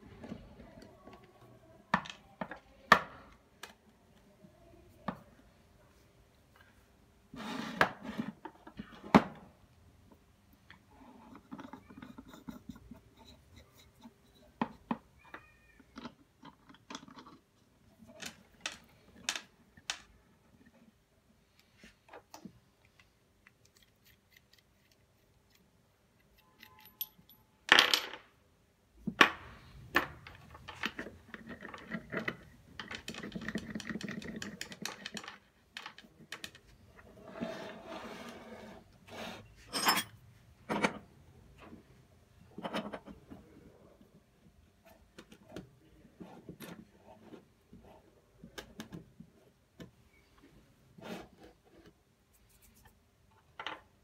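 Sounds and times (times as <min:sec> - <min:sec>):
metal pipe fittings clinking: 0:26.6 - 0:27.4.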